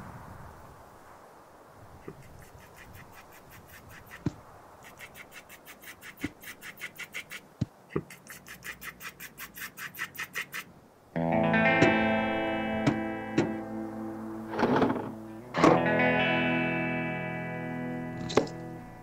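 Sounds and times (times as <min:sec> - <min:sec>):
deeper knocks: 0:11.7 - 0:12.1, 0:12.8 - 0:13.6.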